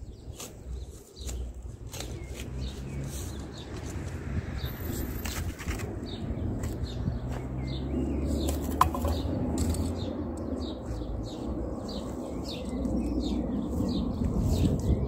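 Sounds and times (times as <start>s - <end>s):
small birds chirping: 0.0s - 15.0s
steady low rumble: 3.0s - 15.0s.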